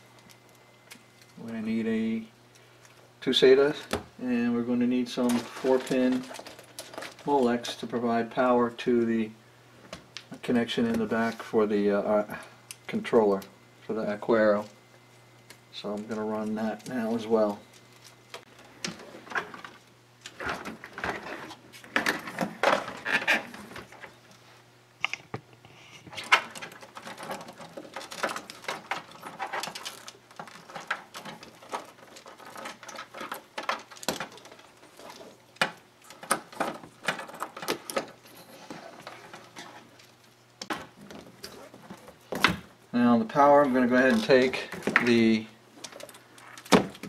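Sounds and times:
cable rustling: 0:04.9 - 0:08.4, 0:14.2 - 0:47.0.

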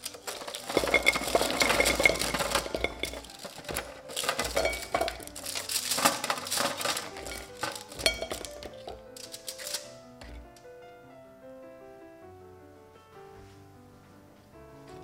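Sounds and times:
chestnuts clattering into ceramic bowl: 0:00.0 - 0:10.5.

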